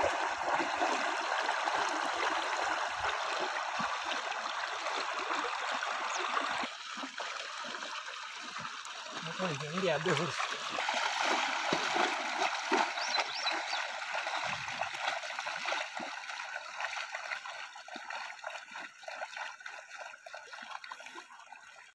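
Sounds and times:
calves splashing through water: 0:00.0 - 0:21.9
river water rushing: 0:08.5 - 0:16.1.

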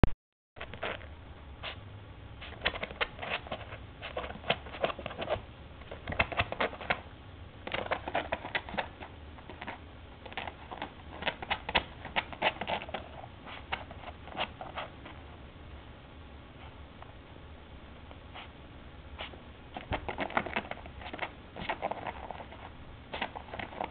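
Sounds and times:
dog claws scratching: 0:02.4 - 0:15.2, 0:19.2 - 0:23.9.

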